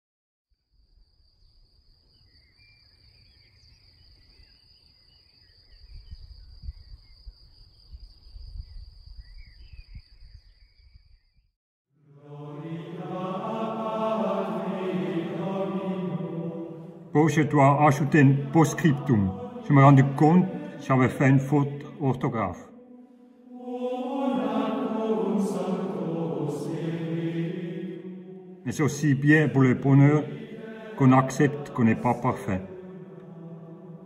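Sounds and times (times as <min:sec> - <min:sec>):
faint bird chirps: 0:01.2 - 0:11.5
men chanting: 0:12.0 - 0:34.0.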